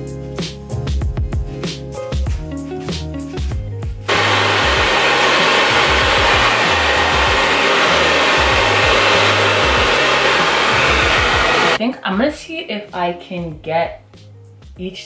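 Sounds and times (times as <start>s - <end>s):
background music with beat: 0.0s - 4.8s, 13.4s - 15.0s
hair dryer running: 4.1s - 11.8s.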